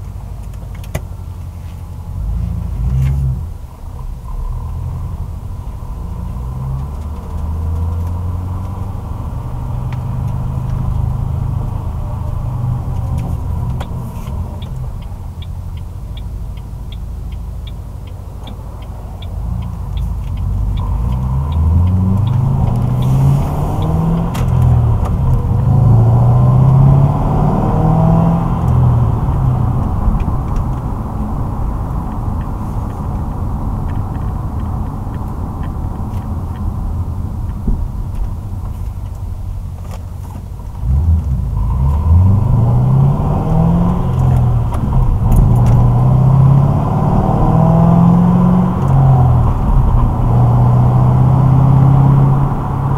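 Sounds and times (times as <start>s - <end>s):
car exhaust drone: 0.0s - 52.9s
light ticking: 5.2s - 27.0s, 28.1s - 46.8s.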